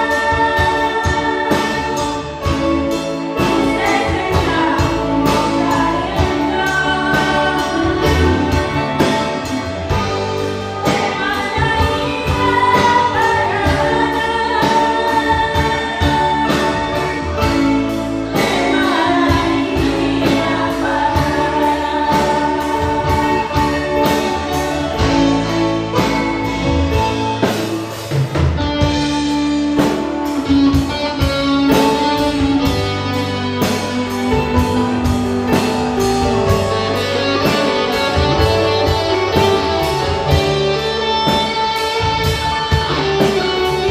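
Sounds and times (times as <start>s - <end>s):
women singing through microphones: 0.0s - 2.7s, 3.4s - 8.8s, 10.8s - 17.7s, 18.3s - 24.4s
live band with drums and keyboard: 0.0s - 43.9s.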